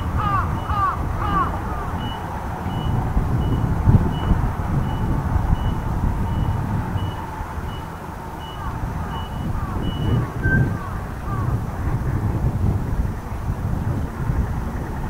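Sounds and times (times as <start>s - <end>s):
reversing alarm beeping: 0.0s - 0.9s, 1.9s - 10.8s
distant jet aircraft rumble: 0.0s - 15.0s.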